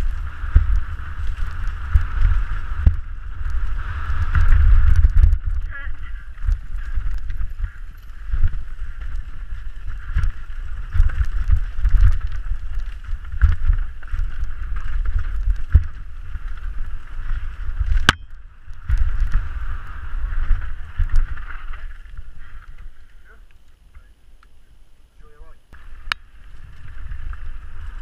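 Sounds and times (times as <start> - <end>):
bike rattling and knocking: 0.0 - 19.7
tyres rolling over dirt and stones: 0.0 - 23.1, 25.8 - 28.0
wind rumbling on microphone: 0.0 - 28.0.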